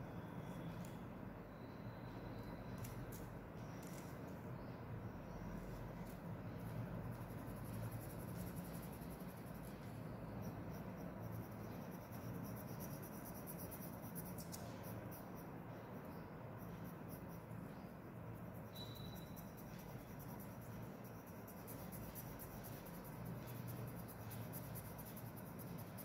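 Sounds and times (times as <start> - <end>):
steady low hum: 0.0 - 26.0
marker scratching on paper: 5.4 - 10.1, 10.7 - 15.4, 18.4 - 26.0.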